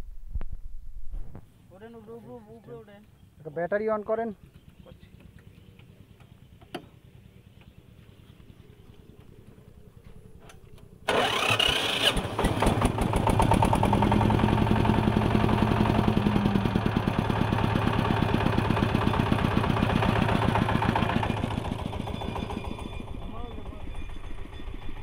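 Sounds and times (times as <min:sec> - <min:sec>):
diesel engine running: 0:11.0 - 0:25.0
electric starter cranking: 0:11.1 - 0:15.2.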